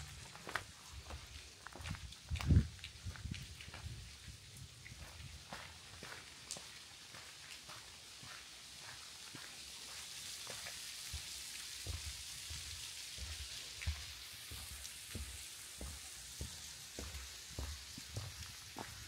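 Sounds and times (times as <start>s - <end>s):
footsteps on a trail: 0.0s - 19.0s
running water hiss: 0.0s - 19.0s.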